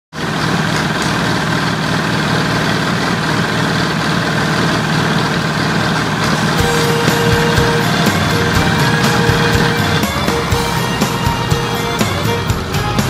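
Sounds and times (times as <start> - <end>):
tractor engine idling: 0.2 - 13.0
music track: 6.1 - 13.0.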